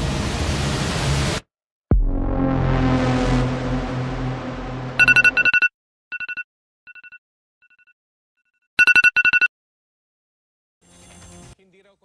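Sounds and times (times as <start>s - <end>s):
electronic alarm two-tone beeping: 5.0s - 8.0s, 8.8s - 9.5s.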